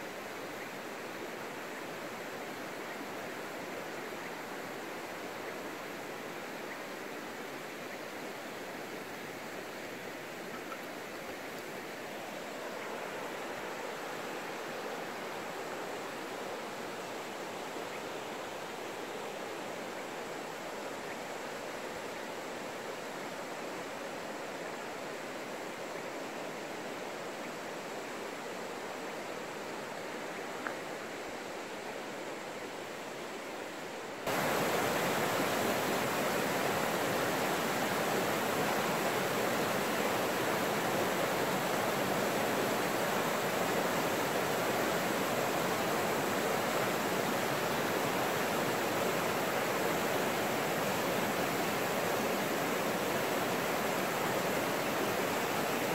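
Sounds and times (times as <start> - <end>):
river rushing over rocks: 0.0 - 55.9.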